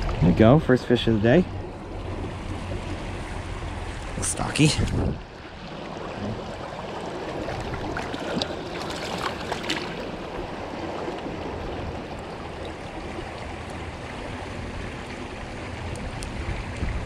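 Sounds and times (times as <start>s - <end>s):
light splashes and clicks: 7.3s - 10.1s, 15.8s - 17.0s.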